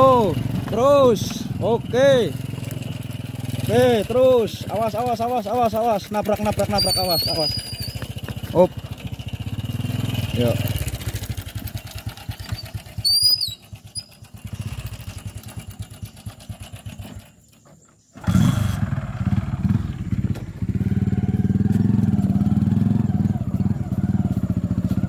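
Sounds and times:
small motorcycle engine: 0.0s - 25.0s
short high chirps: 6.8s - 8.0s.

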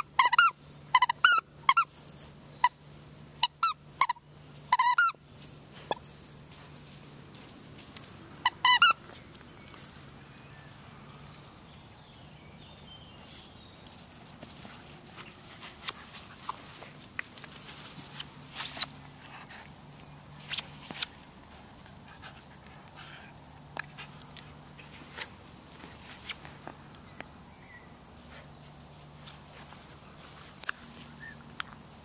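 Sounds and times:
puppy scuffling with toy: 12.6s - 27.1s, 28.1s - 32.0s.

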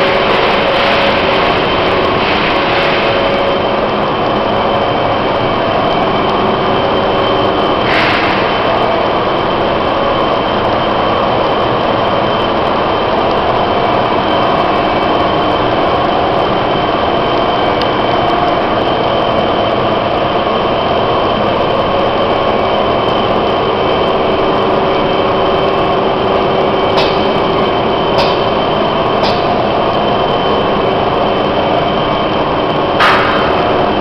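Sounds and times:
electric motors and fans droning: 0.0s - 34.0s
loud knock: 33.0s - 33.9s.

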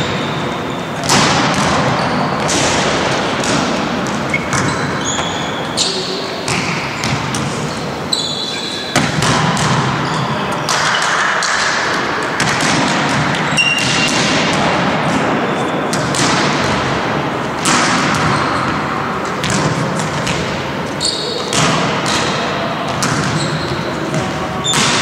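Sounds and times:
volleyballs smacking and bouncing: 0.0s - 5.8s, 6.4s - 8.0s, 8.8s - 25.0s
short high squeaks: 7.7s - 8.9s, 13.5s - 14.1s.

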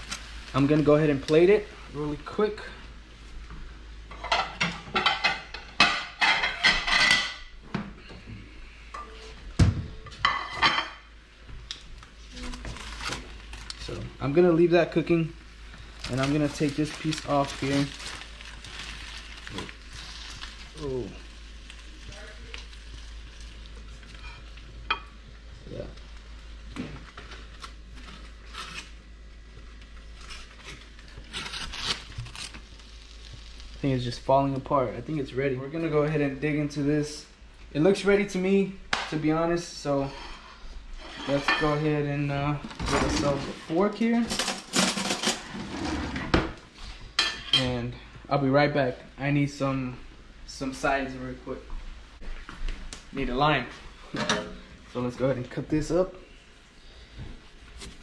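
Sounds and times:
scrapes and rustles of handling: 15.7s - 21.3s, 39.8s - 47.8s.

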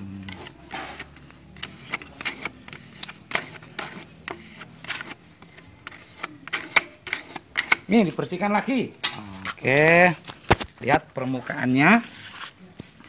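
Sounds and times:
spreader scraping filler on metal: 0.3s - 8.2s.

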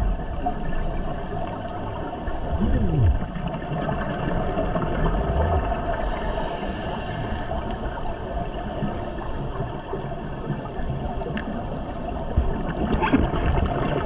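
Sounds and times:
underwater water noise: 0.0s - 14.0s
hiss: 5.8s - 10.0s.

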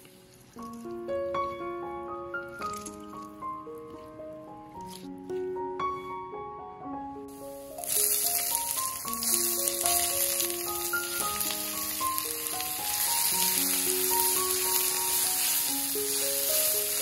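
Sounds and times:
slow melodic background music: 0.0s - 17.0s
food sizzling in hot oil: 7.3s - 17.0s.

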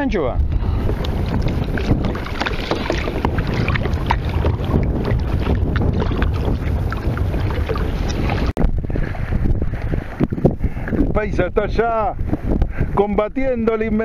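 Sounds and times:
wind buffeting microphone: 0.0s - 14.0s
water slapping against kayak hull: 0.5s - 8.8s.

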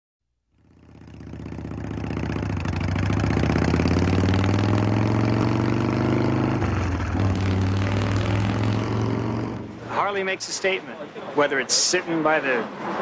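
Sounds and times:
motorcycle engine running: 0.5s - 9.8s.

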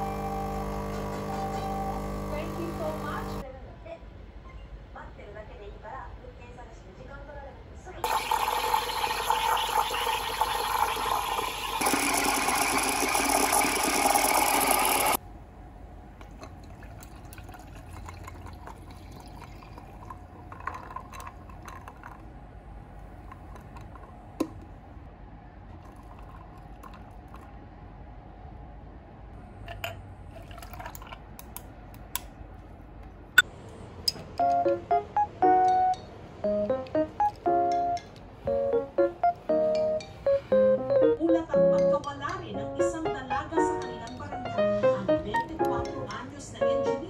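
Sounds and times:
steam wand hissing into milk: 8.1s - 15.2s.

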